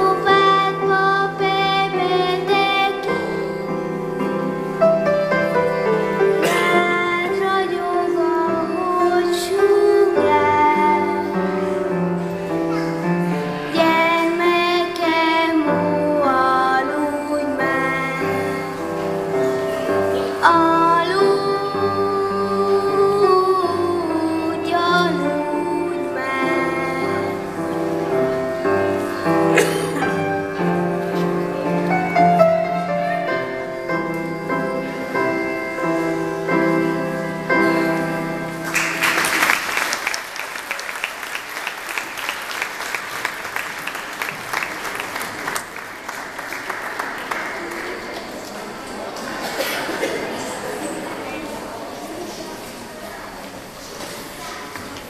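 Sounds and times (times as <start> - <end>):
children's choir singing: 0.0 - 41.0, 41.6 - 55.0
audience applauding: 38.6 - 49.3.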